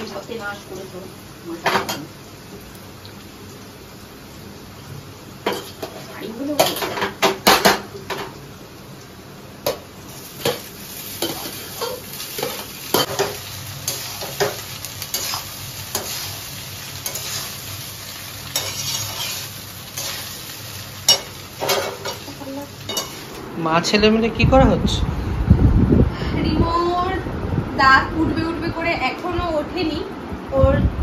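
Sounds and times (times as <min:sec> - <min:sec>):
food sizzling: 0:00.0 - 0:25.0
metal spatula scraping a wok: 0:11.1 - 0:17.6, 0:18.5 - 0:20.4, 0:22.9 - 0:23.4.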